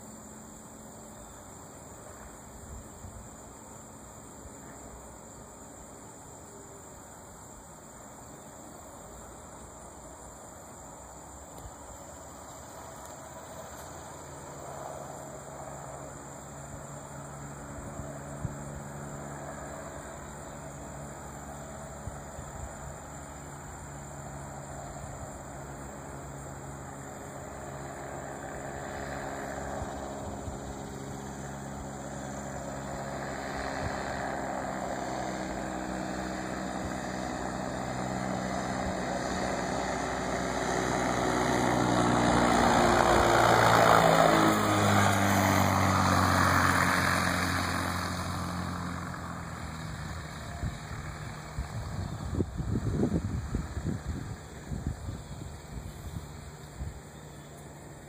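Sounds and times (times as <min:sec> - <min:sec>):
insect chirring: 0:00.0 - 0:58.0
propeller airplane engine drone: 0:00.0 - 0:58.0
low wind rumble on microphone: 0:27.5 - 0:57.1.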